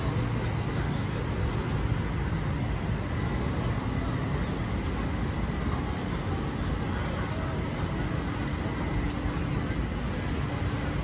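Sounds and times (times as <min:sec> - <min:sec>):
chatter of voices: 0:00.0 - 0:11.0
traffic running: 0:00.0 - 0:11.0.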